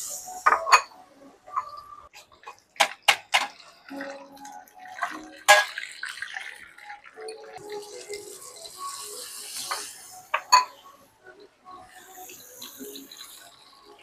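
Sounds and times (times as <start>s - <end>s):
hot oil sizzling: 7.6s - 10.8s, 11.9s - 14.0s.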